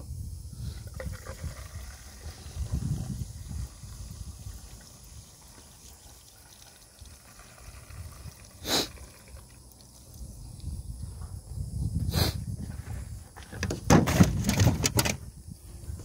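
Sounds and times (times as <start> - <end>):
gasoline trickling into tank: 0.6 - 10.8
rush of pouring liquid: 0.7 - 10.4.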